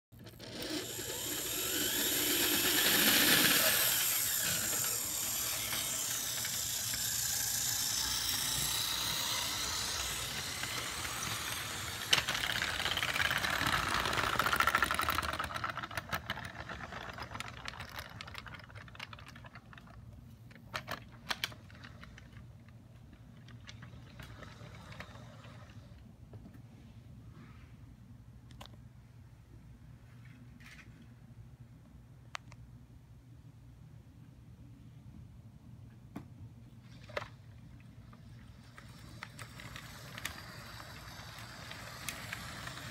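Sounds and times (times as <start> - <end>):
model train motor whining: 0.2 - 19.4, 23.5 - 26.0, 38.0 - 42.9.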